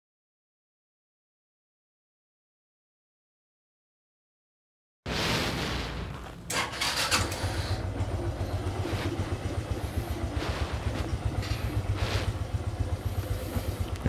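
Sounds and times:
motorcycle engine idling low: 6.4 - 14.0.

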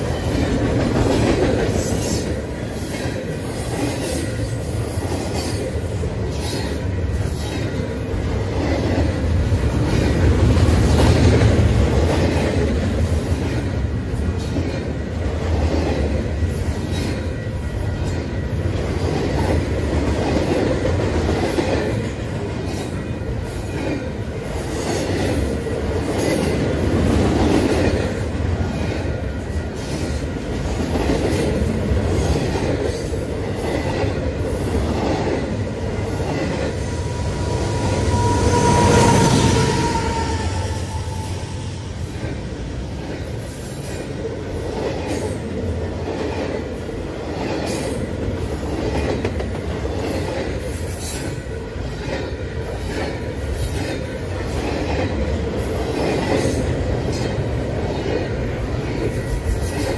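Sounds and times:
steel wheels rumbling on rail: 0.0 - 59.9
high wheel squeal: 36.3 - 42.3
train wheel clicks: 43.8 - 59.9.

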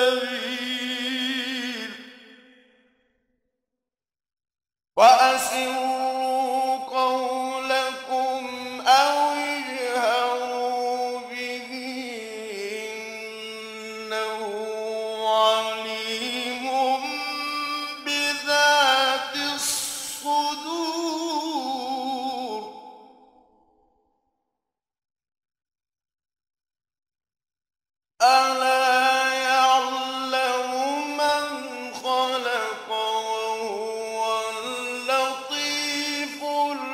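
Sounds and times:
man chanting melodic recitation: 0.0 - 2.1, 5.0 - 22.7, 28.2 - 36.9.

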